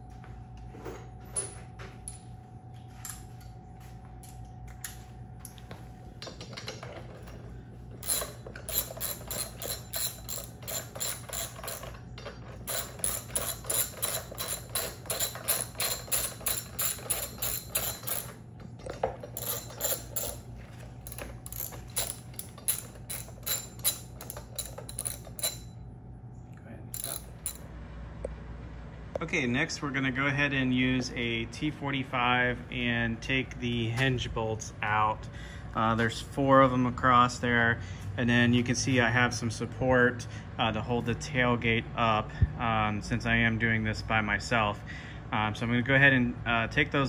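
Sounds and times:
ratchet wrench clicking: 0:08.0 - 0:12.0, 0:12.6 - 0:18.4, 0:19.3 - 0:20.4, 0:21.0 - 0:25.7, 0:27.0 - 0:27.6.

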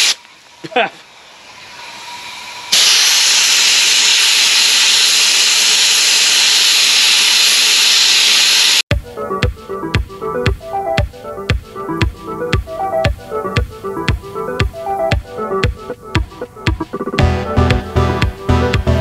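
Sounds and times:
abrasive blaster gun hissing: 0:02.7 - 0:08.8
electronic dance music: 0:08.9 - 0:19.0.

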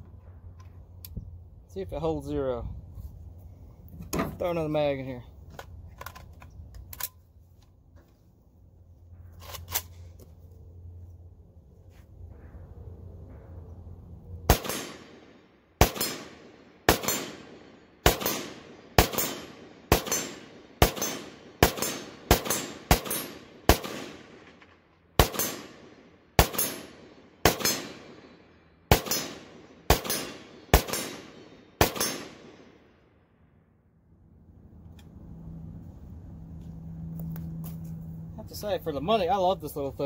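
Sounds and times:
rifle shots echoing: 0:14.5 - 0:33.2.

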